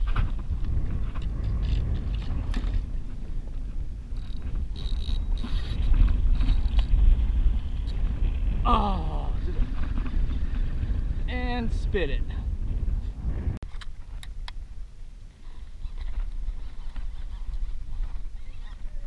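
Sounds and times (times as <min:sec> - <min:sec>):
wind rumble: 0:00.0 - 0:19.0
fishing reel clicks and rattles: 0:04.2 - 0:06.9.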